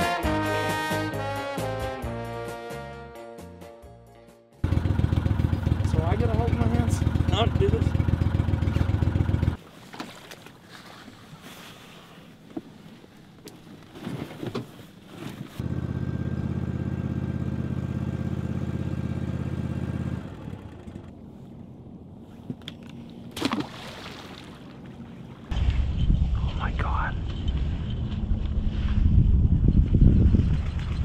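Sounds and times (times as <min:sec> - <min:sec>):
motor engine running: 0:04.6 - 0:09.6, 0:15.6 - 0:22.2.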